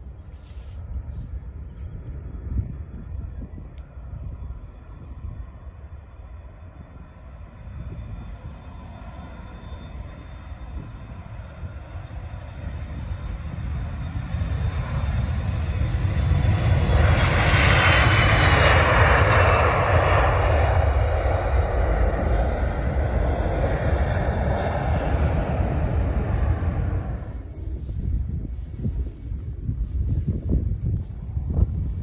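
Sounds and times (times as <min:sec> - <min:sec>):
jet engines taking off: 0:00.0 - 0:32.0.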